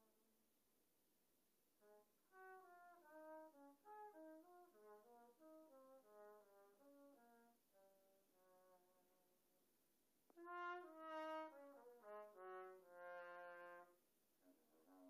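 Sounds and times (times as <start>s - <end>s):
faint trumpet playing short notes: 10.3s - 15.0s.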